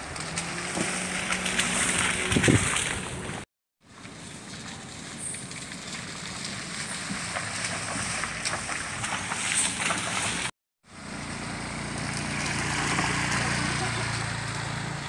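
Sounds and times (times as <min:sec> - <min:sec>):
pickup truck driving slowly: 0:00.0 - 0:15.0
tyres crackling over wet ground: 0:00.0 - 0:15.0
motor scooter engine humming: 0:10.9 - 0:15.0.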